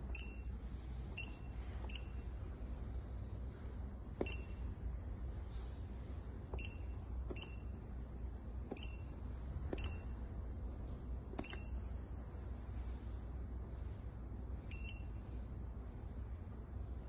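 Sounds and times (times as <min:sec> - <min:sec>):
short beeps: 0:00.0 - 0:02.2, 0:04.2 - 0:04.7, 0:06.5 - 0:07.7, 0:08.7 - 0:10.2, 0:11.4 - 0:12.5, 0:14.6 - 0:15.2
keypad button clicks: 0:11.3 - 0:11.9.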